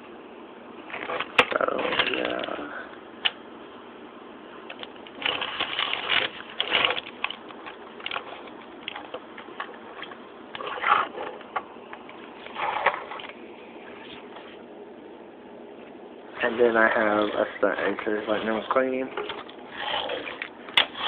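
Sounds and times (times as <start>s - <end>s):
plastic toy car rattling: 0.9s - 2.6s, 4.7s - 9.2s.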